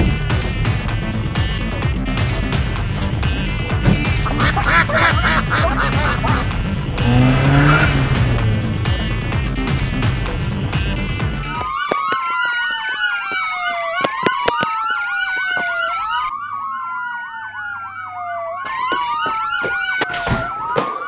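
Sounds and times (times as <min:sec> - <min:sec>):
police siren wailing: 0:03.1 - 0:09.2, 0:11.0 - 0:21.0
fast up-and-down siren tone: 0:04.2 - 0:08.1, 0:11.4 - 0:21.0.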